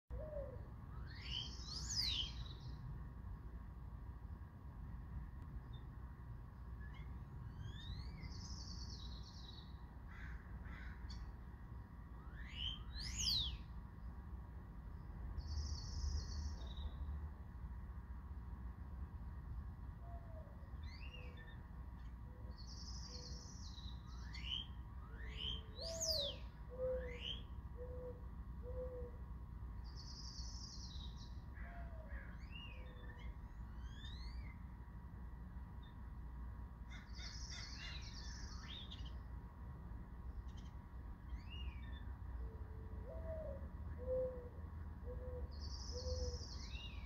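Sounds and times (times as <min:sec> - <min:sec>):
small birds chirping: 0:01.0 - 0:02.9, 0:06.8 - 0:09.9, 0:15.4 - 0:17.1, 0:20.8 - 0:27.6, 0:29.8 - 0:31.6, 0:45.4 - 0:47.0
dove cooing: 0:42.6 - 0:46.4.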